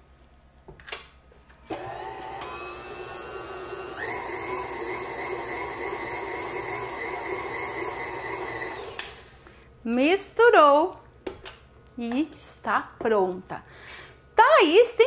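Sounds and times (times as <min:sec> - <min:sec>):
stand mixer motor whine: 0:01.8 - 0:09.3.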